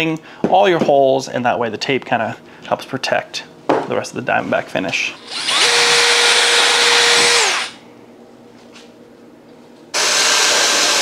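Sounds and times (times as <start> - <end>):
power drill boring through metal: 5.2 - 7.8, 10.0 - 11.0
stick vacuum whining: 5.2 - 7.8.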